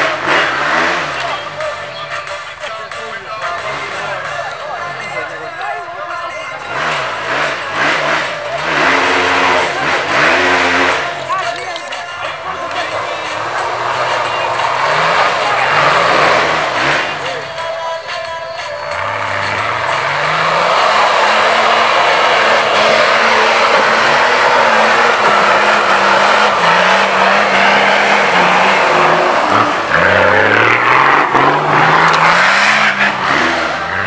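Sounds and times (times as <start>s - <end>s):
engine revving hard: 0.0s - 1.6s, 3.5s - 4.4s, 6.6s - 11.5s, 12.5s - 17.6s, 18.9s - 34.0s
loud rushing noise: 19.2s - 34.0s.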